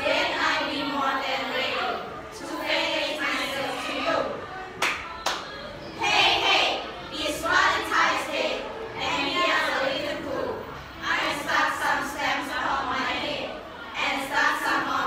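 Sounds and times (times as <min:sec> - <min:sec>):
students reading aloud in unison: 0:00.0 - 0:15.0.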